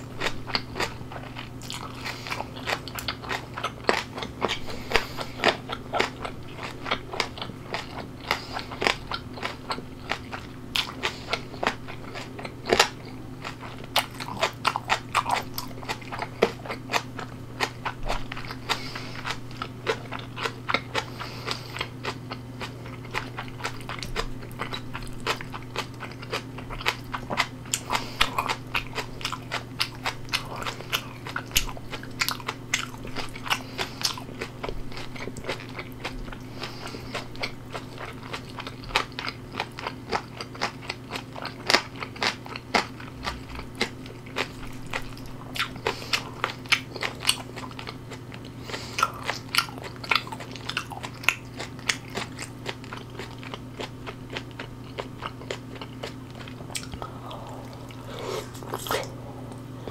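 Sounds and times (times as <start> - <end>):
person chewing crunchy food: 0.0 - 59.9.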